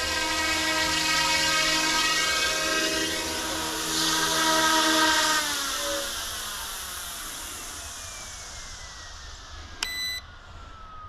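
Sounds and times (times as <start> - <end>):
electric rotor motor whine: 0.0 - 11.0
short electronic beep: 9.8 - 10.2.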